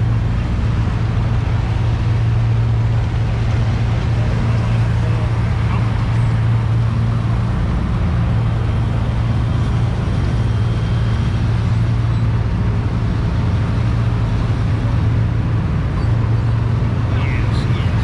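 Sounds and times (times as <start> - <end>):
vehicle engine humming: 0.0 - 18.0.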